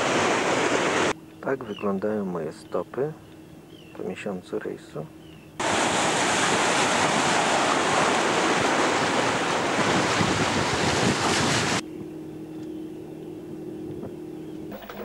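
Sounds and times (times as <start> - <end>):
wind buffeting microphone: 5.6 - 12.1
low hum: 11.8 - 15.0.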